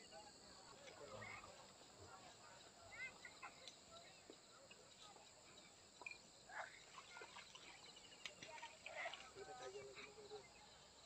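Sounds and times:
faint chirps and clicks: 0:03.0 - 0:05.1, 0:06.0 - 0:09.3.

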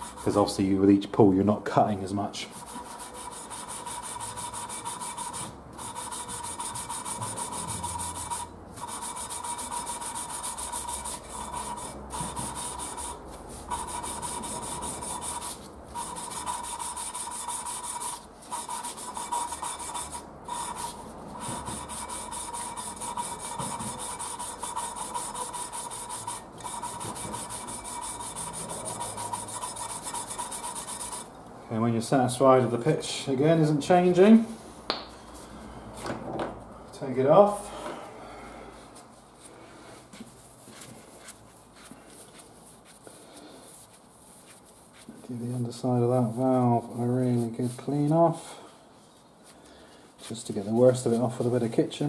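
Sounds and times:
valve lapping gritty rasp: 0:00.0 - 0:00.5, 0:02.5 - 0:31.3.

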